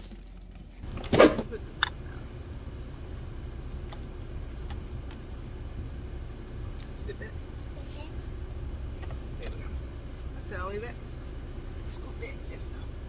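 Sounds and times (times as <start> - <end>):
car cabin rumble: 0.0 - 13.0
loud thump: 0.8 - 1.6.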